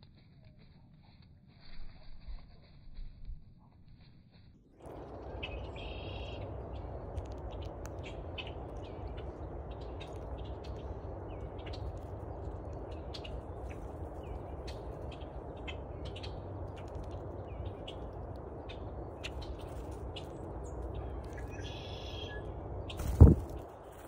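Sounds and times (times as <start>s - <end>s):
steady low rumble: 0.1s - 24.0s
faint bird calls: 21.0s - 23.3s.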